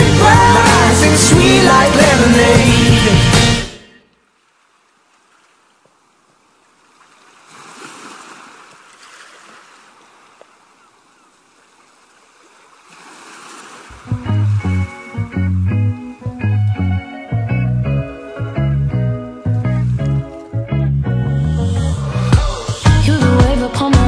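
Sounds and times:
background music: 0.0 - 4.0, 14.0 - 24.0
guitar music: 14.0 - 24.0.

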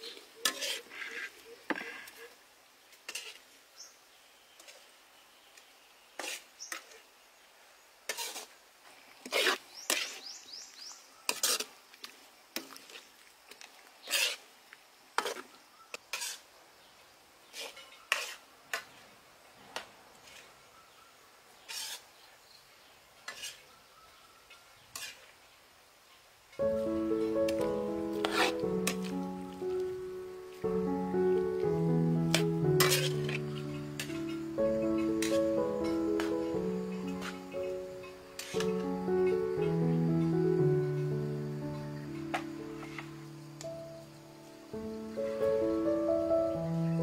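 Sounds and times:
metal ladle scraping wok: 0.4 - 1.9, 3.1 - 3.4, 8.1 - 8.5, 11.3 - 11.7, 14.0 - 14.4, 16.1 - 16.5, 17.5 - 18.8, 21.6 - 22.0, 23.3 - 23.7, 24.9 - 25.3, 26.6 - 29.8, 30.7 - 39.4.

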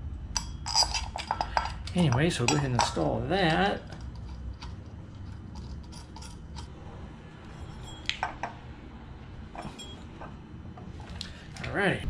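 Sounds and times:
metallic clicks of bolt and tool: 0.4 - 3.1, 3.9 - 6.7.

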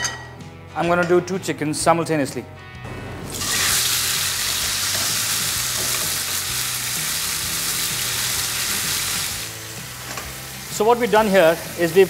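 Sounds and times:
chicken sizzling in hot oil: 3.3 - 12.0.

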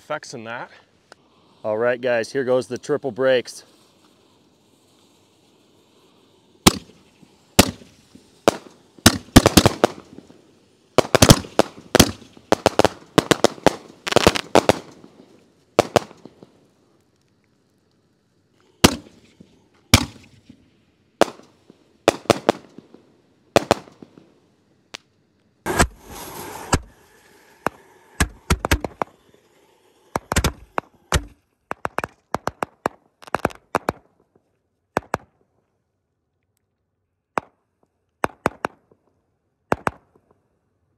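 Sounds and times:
hiss with high whine: 0.1 - 20.8, 25.5 - 31.2
small firework bangs: 2.8 - 17.4, 18.6 - 20.6, 21.2 - 35.6, 37.3 - 40.4
firework shells booming: 3.6 - 16.6, 18.7 - 20.6, 21.2 - 24.3, 25.6 - 34.3.

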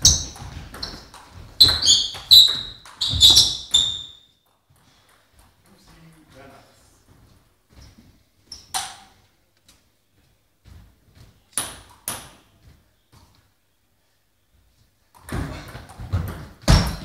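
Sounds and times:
ball hitting bats and table: 0.0 - 4.1, 8.6 - 9.2, 11.5 - 12.5, 15.2 - 17.0
table tennis ball bouncing: 0.0 - 4.1.

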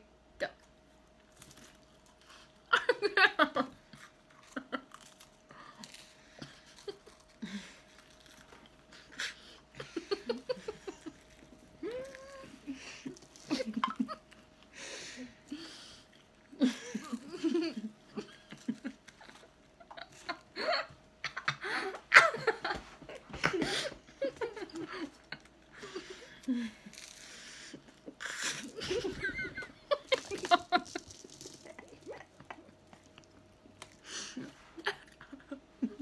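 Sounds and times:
women laughing and giggling: 2.7 - 3.8, 9.8 - 11.2, 11.8 - 14.2, 16.6 - 26.7, 28.1 - 31.1, 34.2 - 36.0.

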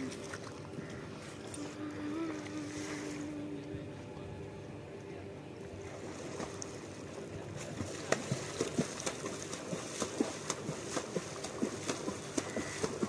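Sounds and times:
river water: 0.0 - 13.0
wind: 0.0 - 13.0.

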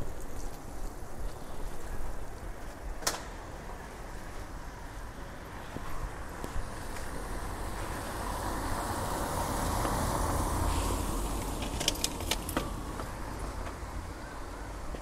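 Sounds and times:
car tyres hissing on wet street: 6.6 - 11.7.

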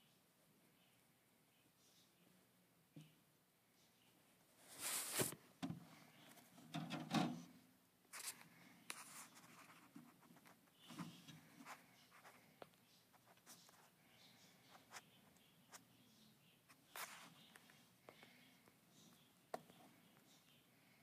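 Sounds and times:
rustling in fibre bedding: 4.6 - 5.4.

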